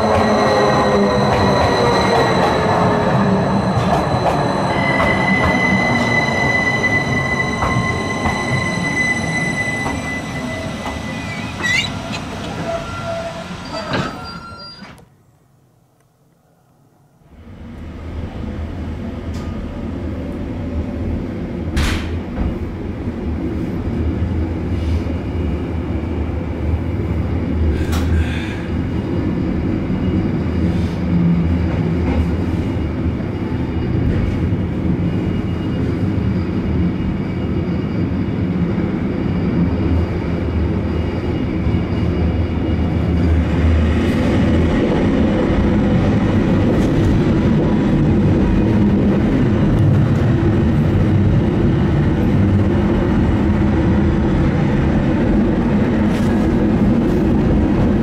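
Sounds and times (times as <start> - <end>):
train wheels rumbling on rail: 0.0 - 15.0, 17.5 - 58.0
high-pitched wheel squeal: 3.8 - 15.0.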